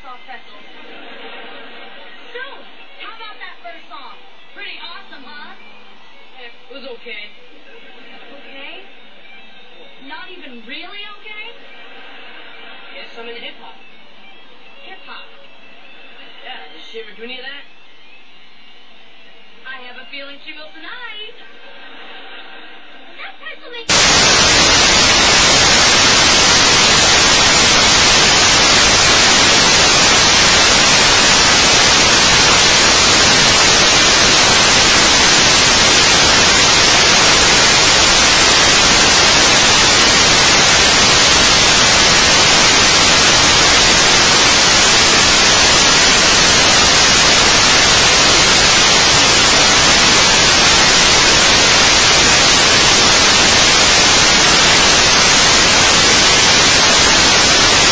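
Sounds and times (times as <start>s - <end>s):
static hiss: 0.0s - 57.9s.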